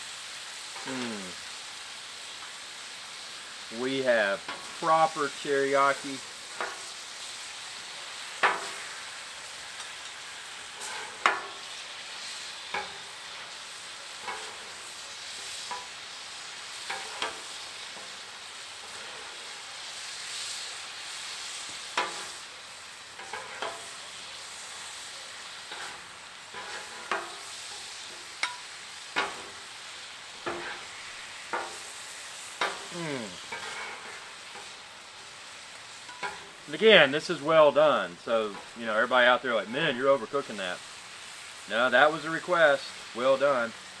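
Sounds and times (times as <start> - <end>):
steak sizzling on griddle: 0.0 - 44.0
metal spatulas scraping steel: 23.2 - 23.9, 25.7 - 27.4, 30.4 - 30.9, 33.5 - 34.7.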